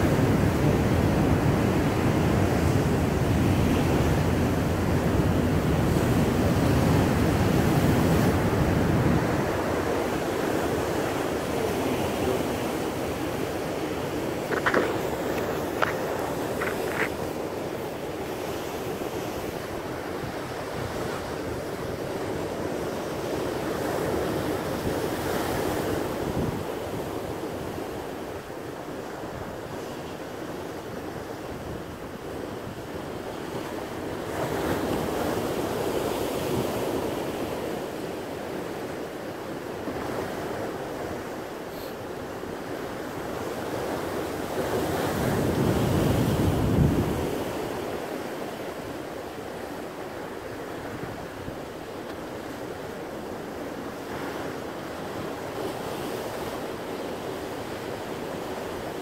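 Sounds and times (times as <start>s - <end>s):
surf breaking over rocks: 10.9s - 17.9s.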